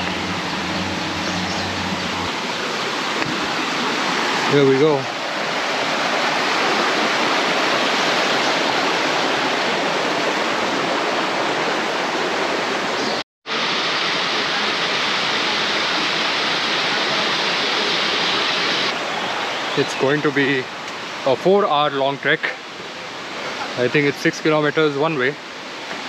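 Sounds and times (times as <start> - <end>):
stream water rushing: 0.0 - 26.0.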